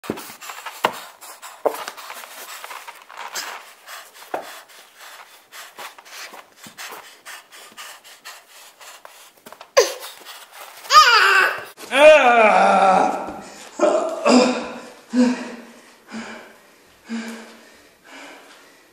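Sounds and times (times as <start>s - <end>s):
person rustling and shuffling: 0.0s - 11.9s, 13.1s - 13.8s.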